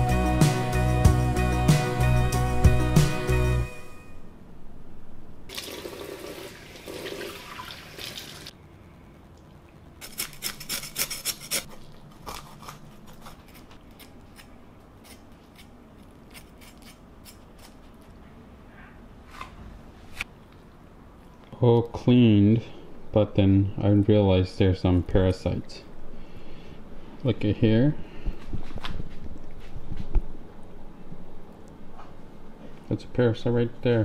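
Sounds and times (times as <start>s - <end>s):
cleaver scraping fish scales: 10.0s - 18.1s.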